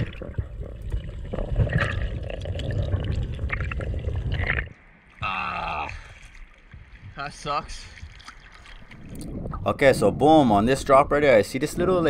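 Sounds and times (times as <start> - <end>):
bubbling gurgles: 0.0 - 6.1
underwater rumble of moving water: 0.0 - 12.0.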